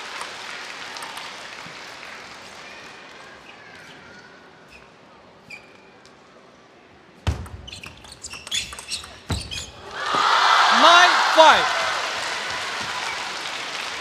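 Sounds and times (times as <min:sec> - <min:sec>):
ping pong ball clicking: 0:08.3 - 0:09.2.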